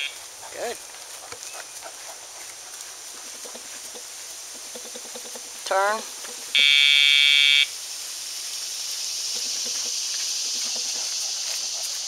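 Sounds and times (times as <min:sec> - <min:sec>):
electronic buzz: 0:06.5 - 0:07.7.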